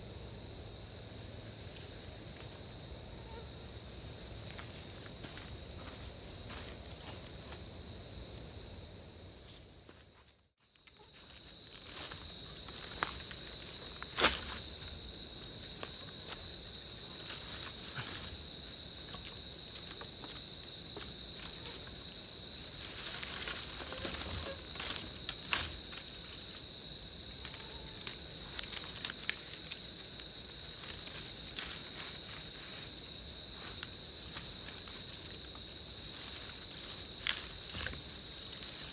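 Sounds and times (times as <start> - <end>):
insect chorus droning: 0.0 - 38.9
dry twigs and leaves crackling: 10.5 - 38.9.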